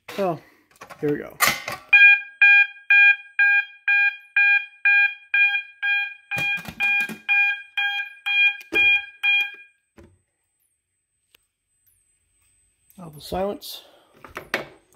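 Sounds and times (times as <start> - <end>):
fire alarm horns pulsing: 1.9 - 9.7.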